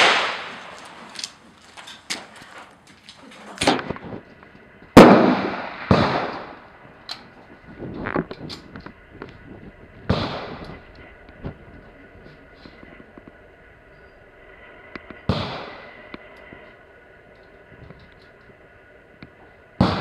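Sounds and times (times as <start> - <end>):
pistol shots: 0.0 - 0.8, 5.0 - 6.6.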